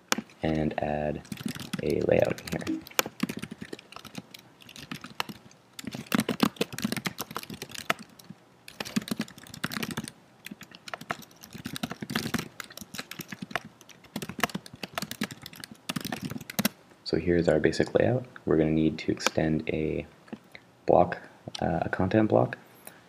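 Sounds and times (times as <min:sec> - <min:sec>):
typing on computer keyboard: 0:01.2 - 0:16.7.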